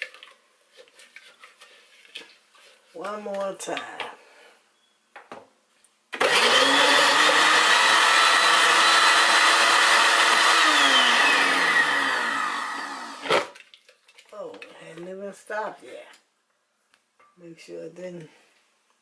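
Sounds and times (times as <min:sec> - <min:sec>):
blender motor running: 0:06.2 - 0:13.5.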